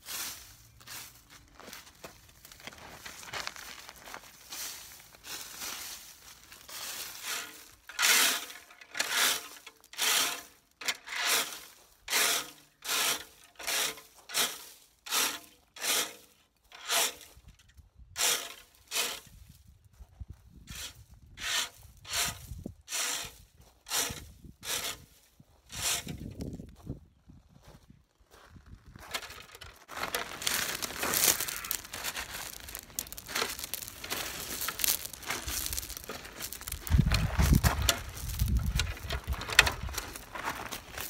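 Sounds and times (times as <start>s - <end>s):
rake scraping over gravel: 0.0s - 17.5s, 18.2s - 19.4s, 20.7s - 26.6s, 28.9s - 41.0s.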